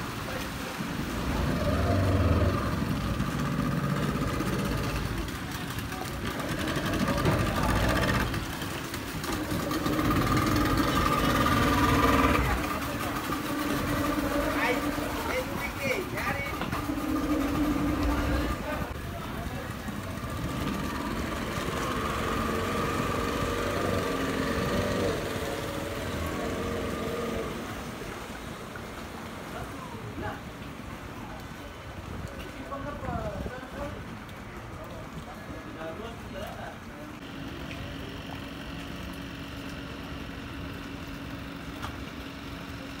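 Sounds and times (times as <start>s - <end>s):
outboard motor running: 0.6s - 29.5s, 37.2s - 43.0s
engine idling: 1.2s - 28.0s.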